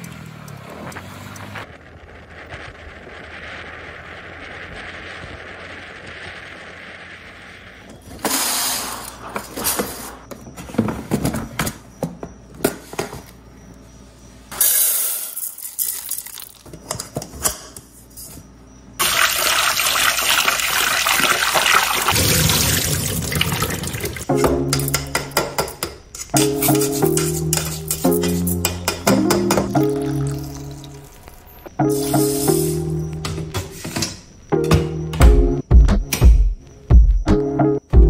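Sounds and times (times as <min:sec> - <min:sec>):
wind and road noise: 0:00.0 - 0:10.6
tap water running: 0:19.0 - 0:24.3, 0:29.5 - 0:31.1.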